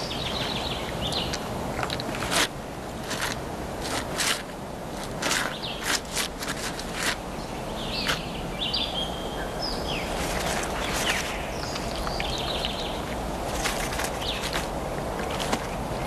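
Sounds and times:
steady hiss: 0.0 - 16.0
high chirping calls: 7.4 - 13.1.

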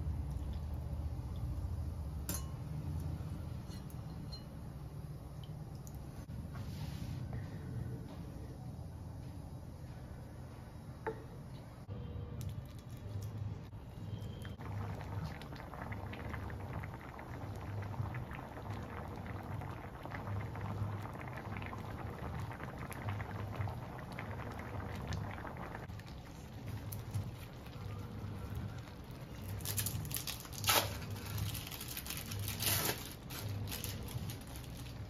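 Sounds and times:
low steady rumble: 0.0 - 35.0
sauce bubbling in a frying pan: 12.7 - 32.4.

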